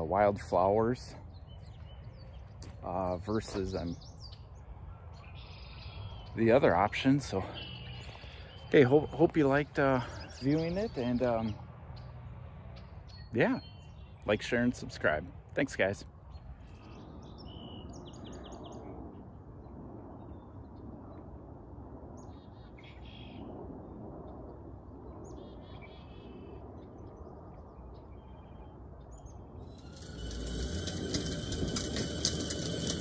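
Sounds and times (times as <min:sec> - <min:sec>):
low outdoor rumble: 0:00.0 - 0:18.2, 0:28.9 - 0:33.0
bird chirps: 0:01.2 - 0:14.4
toy tractor rolling on pavement: 0:29.6 - 0:33.0.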